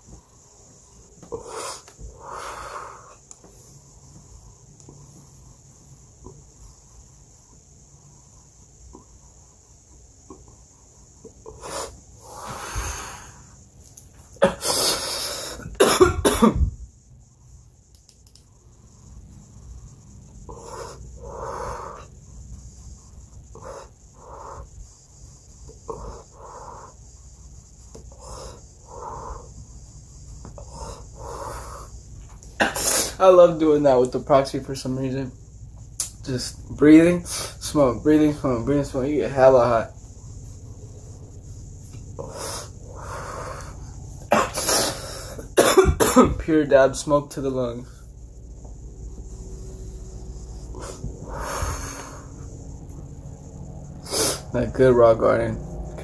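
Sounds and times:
breathing in and out: 0.0 - 15.8, 18.6 - 33.2, 37.2 - 37.7, 40.0 - 45.6, 47.8 - 54.5
harsh breath: 0.6 - 3.3, 11.5 - 13.6, 19.9 - 22.2, 28.1 - 29.7, 30.6 - 32.0, 42.2 - 45.5, 49.4 - 52.8, 54.0 - 54.5
man coughing: 14.4 - 14.8, 15.6 - 16.7, 32.6 - 33.2, 44.3 - 45.0, 45.6 - 46.4.

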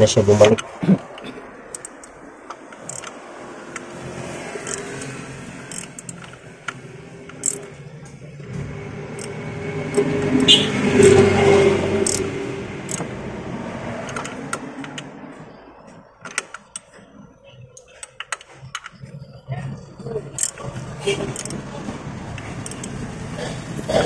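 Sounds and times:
wrench clicking on bolt: 1.7 - 3.9, 4.6 - 7.7, 9.2 - 10.1, 12.0 - 12.3, 12.9 - 13.1, 14.0 - 15.1, 20.4 - 20.6, 21.3 - 21.6, 22.3 - 23.0.

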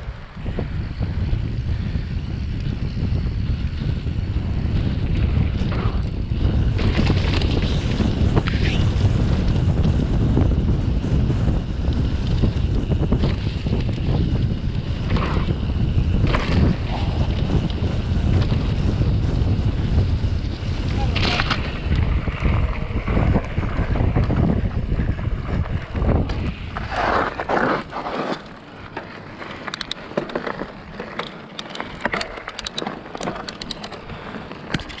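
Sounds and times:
wind buffeting microphone: 0.0 - 28.0
bike tyres rumbling on trail: 0.0 - 35.0.

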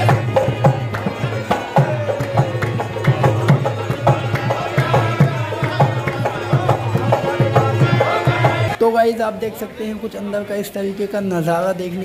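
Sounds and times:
hand claps: 0.0 - 7.6
hand drum rhythm: 0.0 - 8.8
harmonium chords: 0.0 - 8.8
person singing: 0.0 - 8.8.

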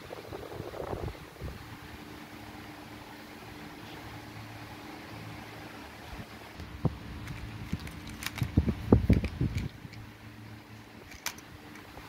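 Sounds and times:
steady low hum: 0.0 - 12.0
plastic toys clattering: 7.2 - 10.0, 11.0 - 11.9.

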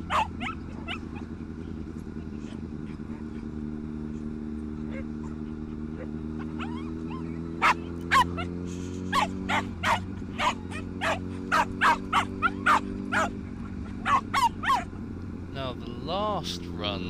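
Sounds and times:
dog barking: 0.0 - 1.3, 4.8 - 14.9
steady low hum: 0.0 - 17.0.

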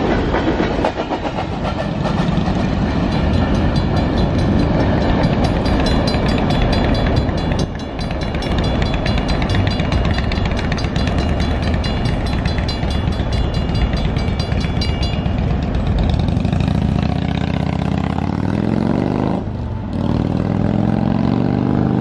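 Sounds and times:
railroad crossing bell ringing: 2.4 - 18.1.

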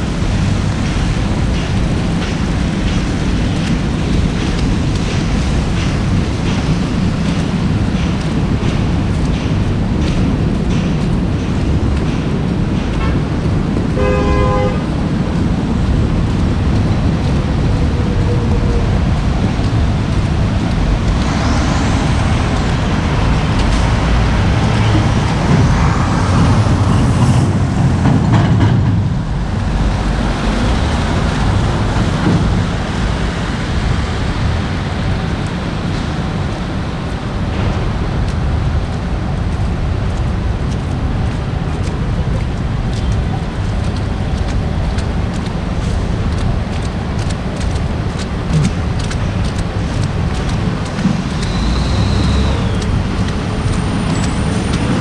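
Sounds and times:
traffic on wet streets: 0.0 - 55.0
car horn toot: 14.0 - 14.8.

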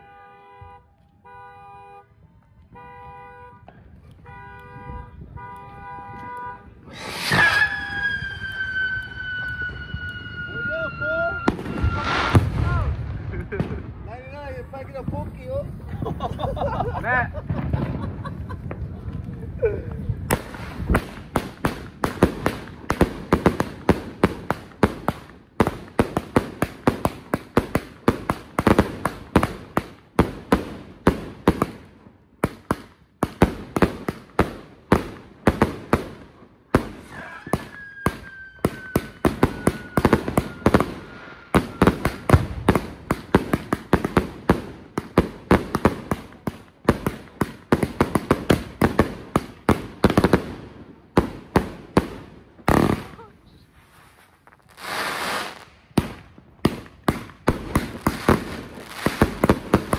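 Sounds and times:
fireworks bangs: 2.8 - 59.9
falling firework whistle: 6.8 - 12.9, 37.0 - 42.3.

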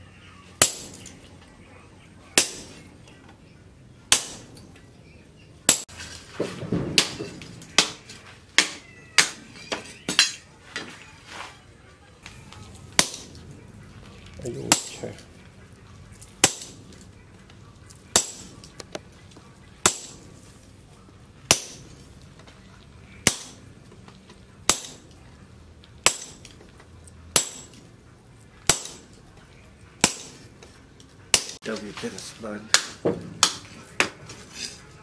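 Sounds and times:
hammer clanging on metal: 2.4 - 2.9, 4.1 - 4.8, 5.7 - 10.5, 13.0 - 13.7, 14.7 - 15.5, 16.4 - 17.0, 18.1 - 18.7, 19.8 - 20.4, 21.5 - 22.0, 23.2 - 23.8, 24.7 - 25.2, 26.0 - 26.8, 27.4 - 28.0, 28.6 - 29.3, 30.0 - 30.6.

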